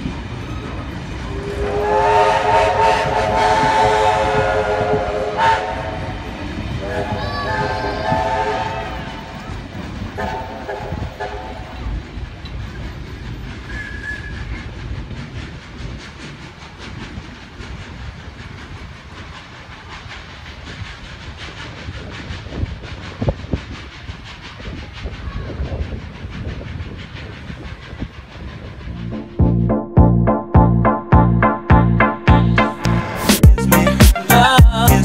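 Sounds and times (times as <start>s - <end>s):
wheels clattering on rails: 0.0s - 28.9s
steam locomotive exhaust beats: 0.0s - 35.0s
music: 29.0s - 35.0s.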